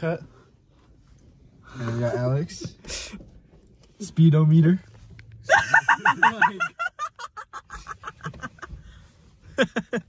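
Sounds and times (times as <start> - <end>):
people laughing: 5.5 - 8.8, 9.5 - 10.0.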